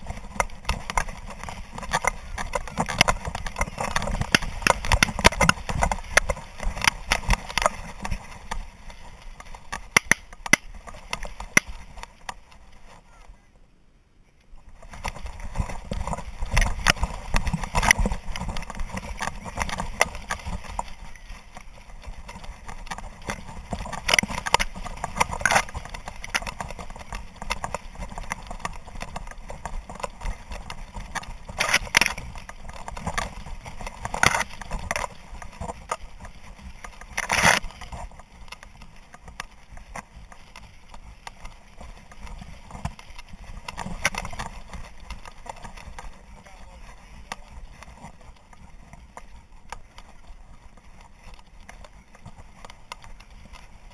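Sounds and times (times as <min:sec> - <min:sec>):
dry grass rustling: 0:00.0 - 0:13.5, 0:14.3 - 0:53.9.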